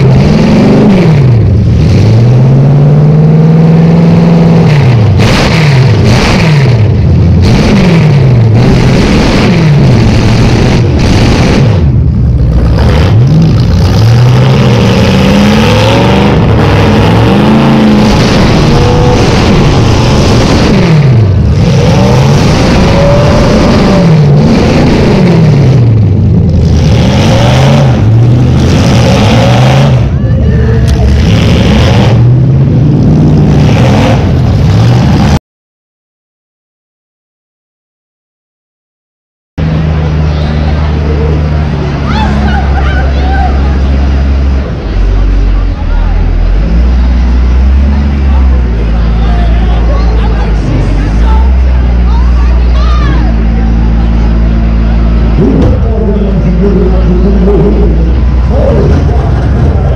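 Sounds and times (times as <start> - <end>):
loud car engine revving: 0.0 - 35.4, 39.6 - 59.9.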